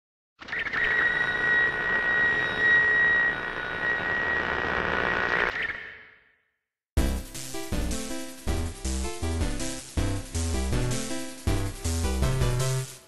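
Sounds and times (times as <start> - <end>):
high whining tone: 0.5 - 6.2.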